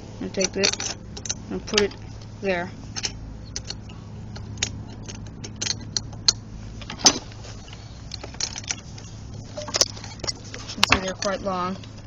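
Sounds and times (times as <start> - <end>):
steady low hum: 0.0 - 12.0
metallic clinks of steel bolts: 0.4 - 2.0, 2.9 - 7.2.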